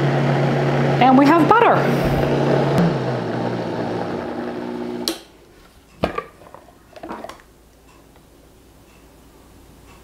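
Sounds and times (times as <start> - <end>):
blender motor running: 0.0 - 5.1.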